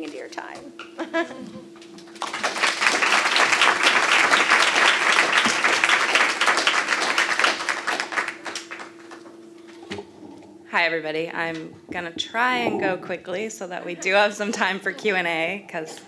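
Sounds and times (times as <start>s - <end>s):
audience applauding: 2.1s - 10.1s.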